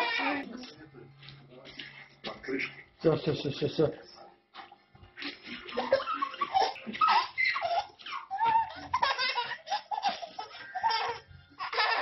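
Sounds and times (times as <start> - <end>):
baby laughing: 5.2 - 12.0.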